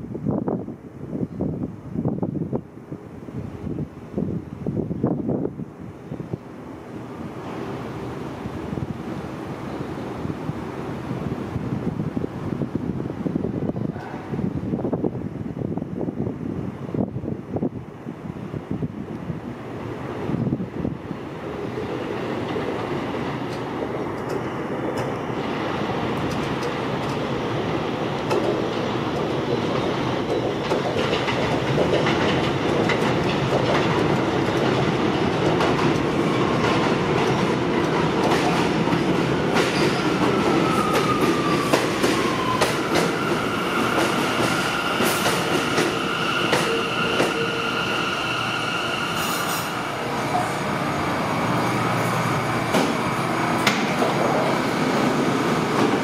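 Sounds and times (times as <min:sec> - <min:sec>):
falling whine of train: 0:00.0 - 0:56.0
train rumble: 0:00.0 - 0:56.0
wheels clicking over rail joints: 0:26.0 - 0:43.2
high brake squeal: 0:43.0 - 0:50.6.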